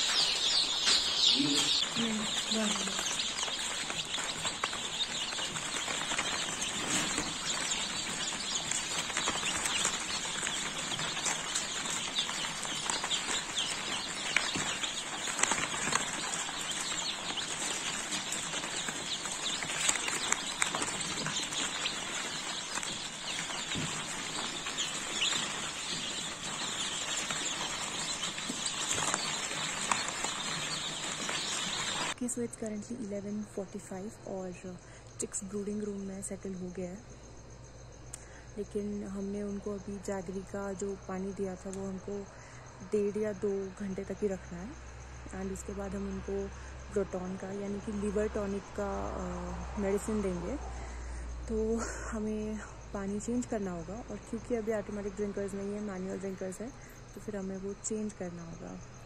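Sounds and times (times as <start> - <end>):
chicks peeping: 0.0 - 32.2.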